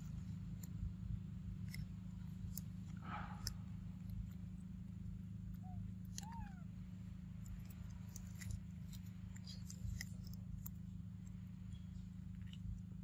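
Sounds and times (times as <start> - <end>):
steady low hum: 0.0 - 13.0
monkey coo calls: 5.5 - 6.8.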